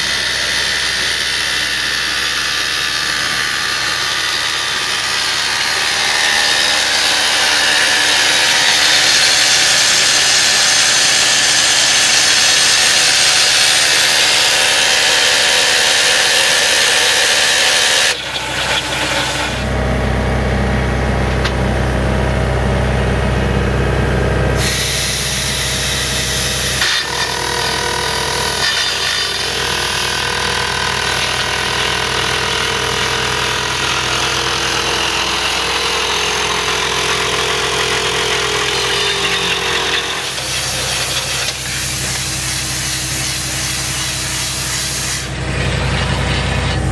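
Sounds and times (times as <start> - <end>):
low engine drone: 18.2 - 26.9, 38.0 - 46.9
rock drill high-pitched hiss: 24.6 - 27.8, 39.2 - 45.3.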